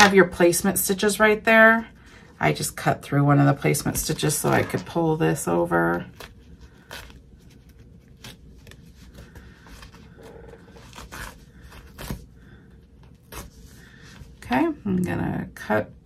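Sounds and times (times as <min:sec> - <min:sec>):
stabilizer paper crinkling and ripping: 0:05.8 - 0:12.3.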